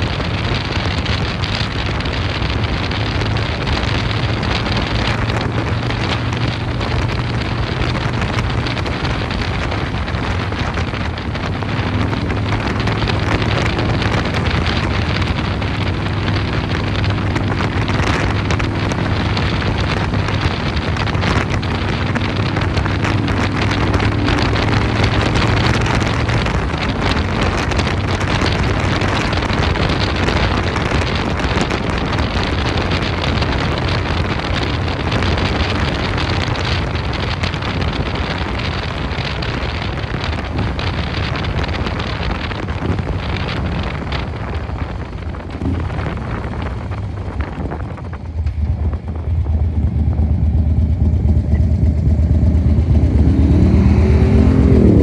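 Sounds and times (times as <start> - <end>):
heavy wind noise on microphone: 0.0 - 55.0
motorcycle engine running: 0.0 - 55.0.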